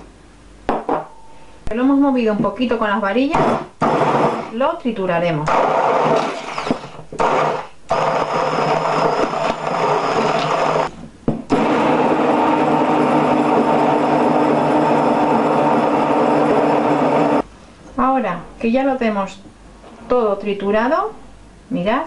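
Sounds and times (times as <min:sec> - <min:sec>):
hand blender running: 0:05.6 - 0:10.9, 0:11.5 - 0:17.4.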